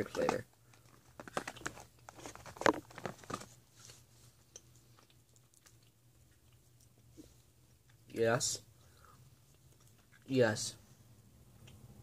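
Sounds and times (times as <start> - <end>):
sticky chewing clicks and smacks: 4.5 - 7.1, 9.5 - 10.3.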